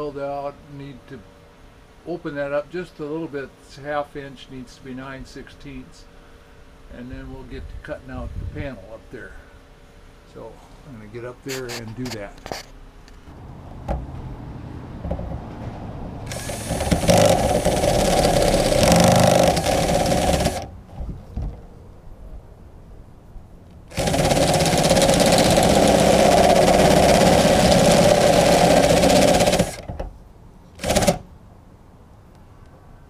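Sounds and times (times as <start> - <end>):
cordless drill in sheet metal: 16.3 - 20.7, 23.9 - 29.8, 30.8 - 31.3.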